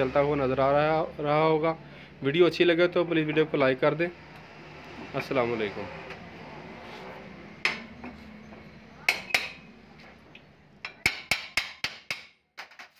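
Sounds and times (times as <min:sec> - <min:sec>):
ringing metal taps: 0:09.1 - 0:09.6.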